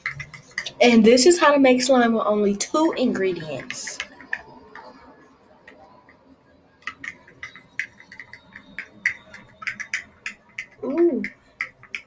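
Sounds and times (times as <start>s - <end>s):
utensil clicking against container: 0.0s - 0.8s, 6.8s - 12.0s.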